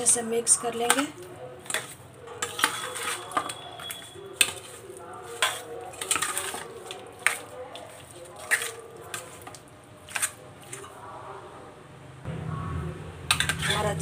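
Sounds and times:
metal spoon scraping steel bowl: 0.5s - 11.0s, 13.3s - 14.0s.

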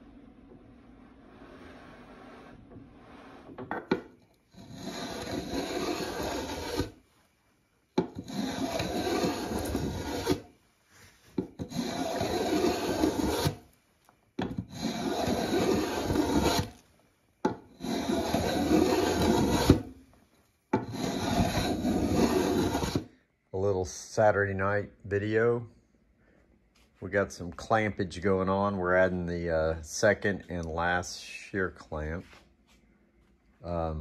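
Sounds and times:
hand plane shaving wood: 0.9s - 3.6s, 4.5s - 7.0s, 8.1s - 10.5s, 11.4s - 13.6s, 14.4s - 16.8s, 17.7s - 20.0s, 20.8s - 23.1s.

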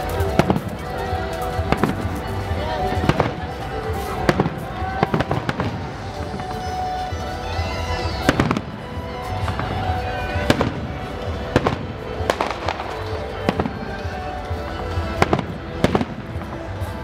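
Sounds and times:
music: 0.0s - 17.0s.

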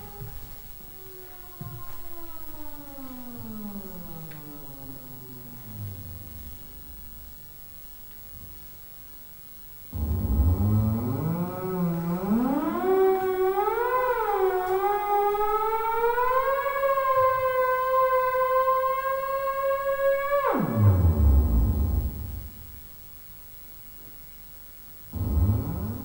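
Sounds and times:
theremin gliding tone: 0.0s - 7.6s, 10.0s - 22.8s.

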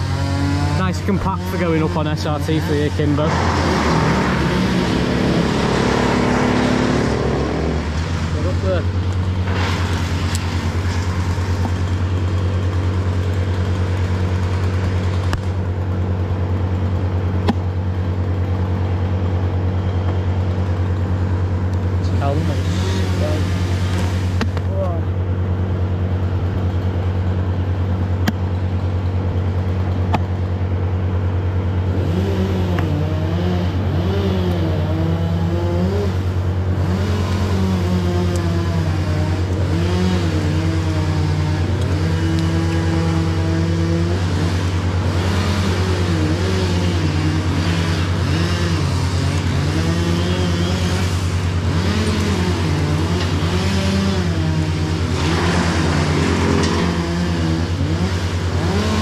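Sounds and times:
wood chipper engine running: 0.0s - 59.0s.

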